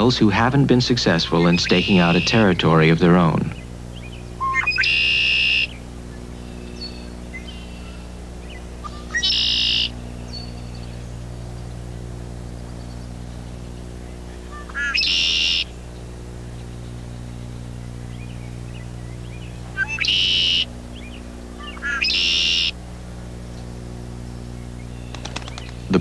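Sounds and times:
blackbird singing buzzy trill: 0:00.0 - 0:26.0
steady low hum: 0:00.0 - 0:26.0.

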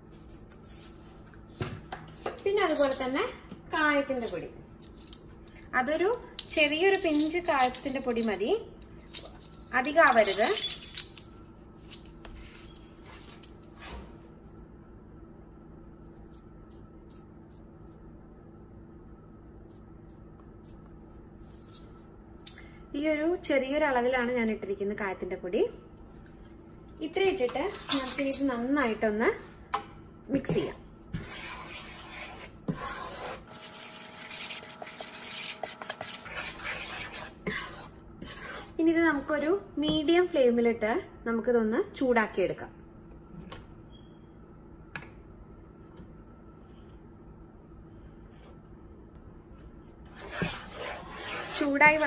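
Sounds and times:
steady low hum: 0:00.0 - 0:52.0
wooden spatula scraping metal pan: 0:31.2 - 0:38.8, 0:50.1 - 0:52.0.

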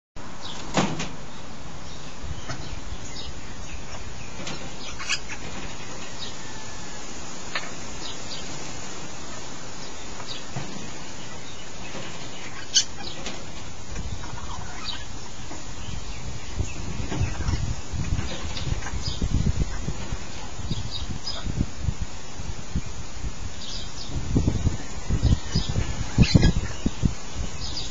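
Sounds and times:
steady hiss: 0:00.2 - 0:27.9
parrots chirping: 0:02.0 - 0:06.7, 0:11.2 - 0:13.2, 0:14.0 - 0:16.2, 0:16.8 - 0:19.9, 0:25.4 - 0:26.9.

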